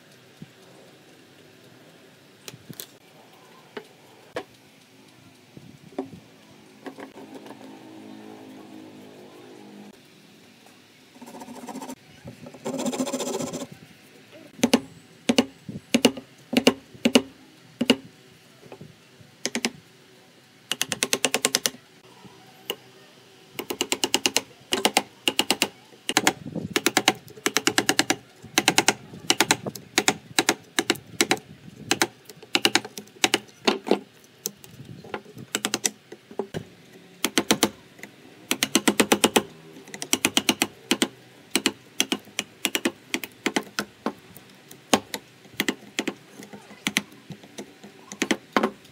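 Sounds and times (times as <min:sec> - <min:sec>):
chisel tapping and knocking: 0:38.5 - 0:44.2, 0:44.9 - 0:46.2, 0:46.8 - 0:48.8.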